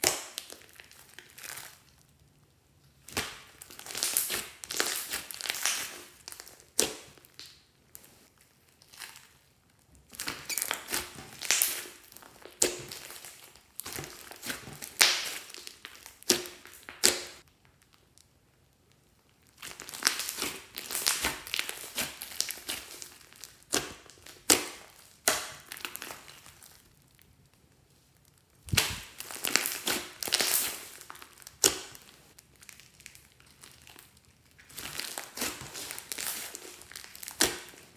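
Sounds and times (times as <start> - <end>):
slime squelching: 3.0 - 18.2, 19.3 - 37.9
slime clicks and crackles: 28.2 - 37.9.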